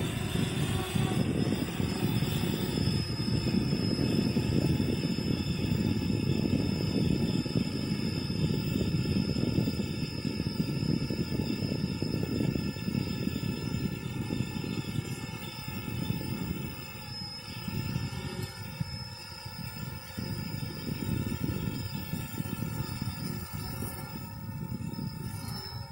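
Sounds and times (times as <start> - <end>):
drone rotors hovering: 0.0 - 25.9
faint high whine: 0.0 - 25.9.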